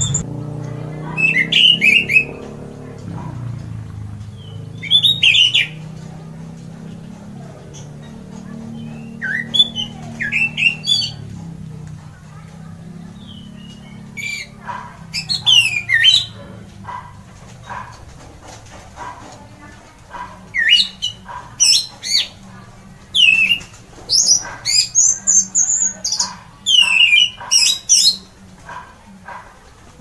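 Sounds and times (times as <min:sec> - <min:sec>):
thrush singing whistled phrases: 0:01.1 - 0:02.3, 0:04.4 - 0:05.8, 0:08.8 - 0:11.2, 0:13.2 - 0:16.4, 0:23.2 - 0:28.2.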